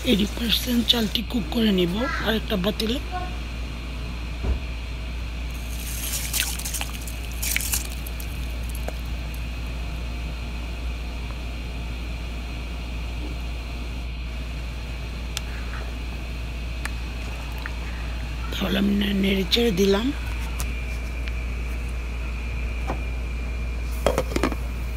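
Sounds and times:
low even hum: 0.0 - 24.9
boiling water bubbling: 5.5 - 10.5.

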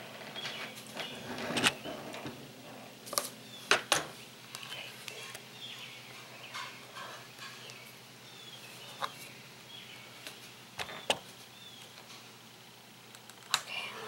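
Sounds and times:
small birds chirping: 0.2 - 2.4, 3.3 - 12.2.

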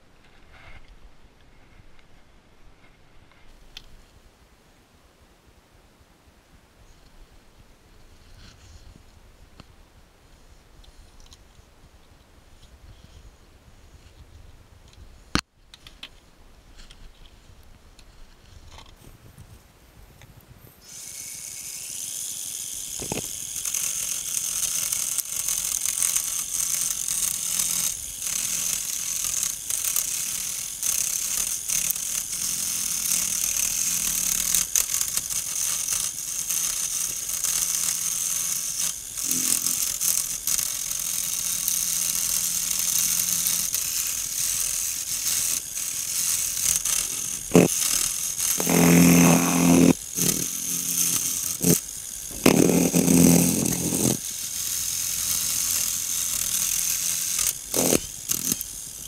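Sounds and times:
wood lathe starting up: 20.8 - 58.8
hiss of wood being shaved: 40.7 - 54.9, 55.6 - 59.0.

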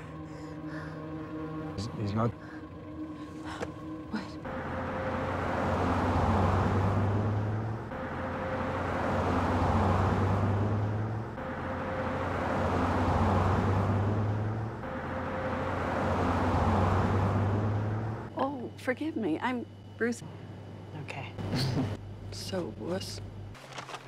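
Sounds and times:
steady low hum: 0.0 - 23.6
pickup truck driving past: 4.4 - 18.3.

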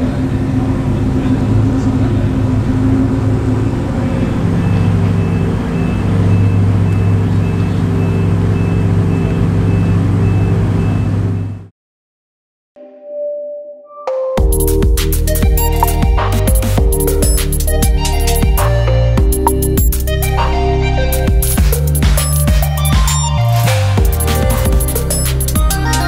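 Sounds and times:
car engine idling: 0.0 - 9.7, 21.1 - 26.0
faint regular beeping: 15.6 - 16.0, 19.4 - 20.0, 22.2 - 25.9.

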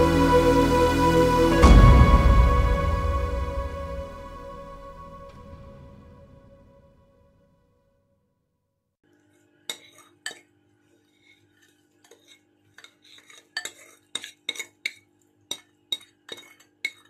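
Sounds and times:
spoon clinking and scraping bowl: 9.7 - 17.0.

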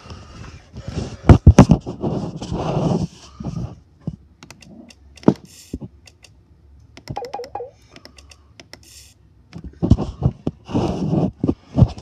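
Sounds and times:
laptop keys clicking: 4.4 - 5.4, 7.0 - 8.9
brief wavering tone: 7.2 - 7.8.

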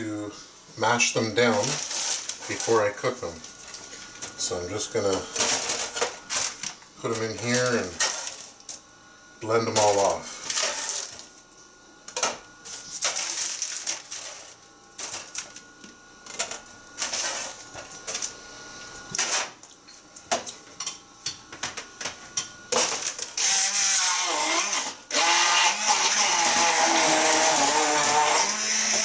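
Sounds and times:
immersion blender whirring: 22.8 - 29.0.

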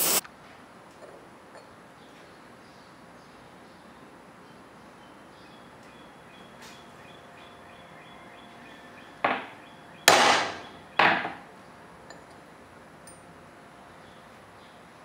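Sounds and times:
hammer striking metal punch: 10.1 - 11.4.

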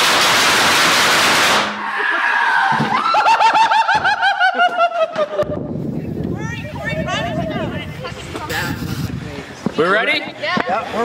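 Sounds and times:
firecrackers crackling: 0.0 - 2.0
man laughing: 3.0 - 5.6.

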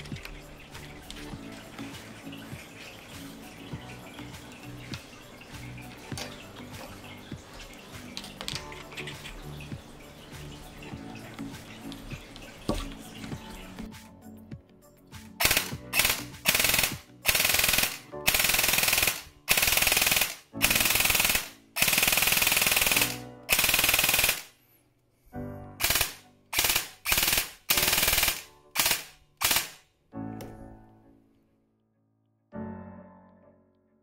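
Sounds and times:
piano music: 0.0 - 29.4, 30.0 - 34.0
airsoft gun firing bursts: 15.4 - 24.5, 25.8 - 29.8.

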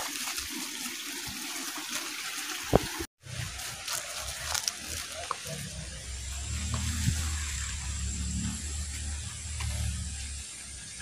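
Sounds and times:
water trickling: 0.0 - 5.6.

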